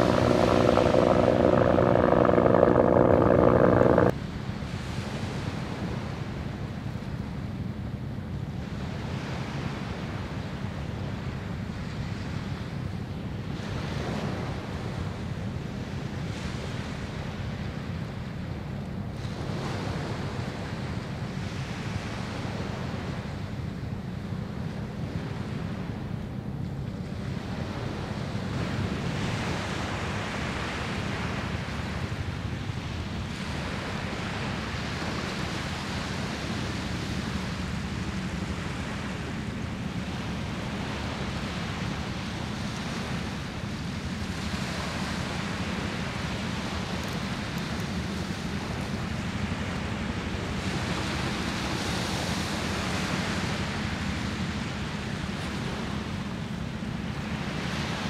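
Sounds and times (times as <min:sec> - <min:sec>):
waves washing ashore: 0:00.0 - 0:04.1, 0:19.1 - 0:58.0
wind rumbling on microphone: 0:00.0 - 0:04.2.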